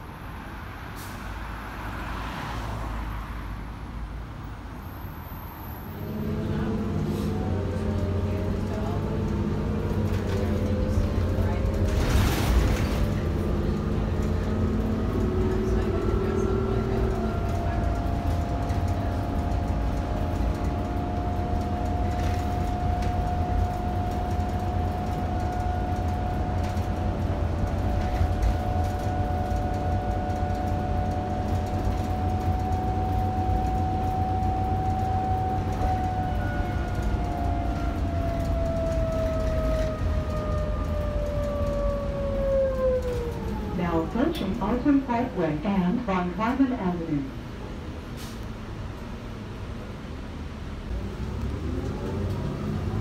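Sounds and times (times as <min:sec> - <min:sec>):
bus drivetrain whine: 0:00.0 - 0:53.0
low engine and road rumble: 0:00.0 - 0:53.0.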